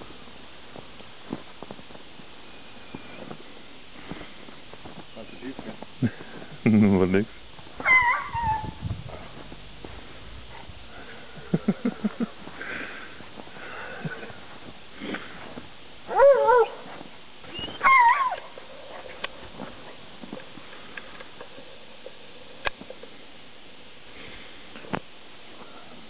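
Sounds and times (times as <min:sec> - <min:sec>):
dog yelping: 0:07.8 - 0:08.8, 0:16.1 - 0:16.8, 0:17.5 - 0:19.2.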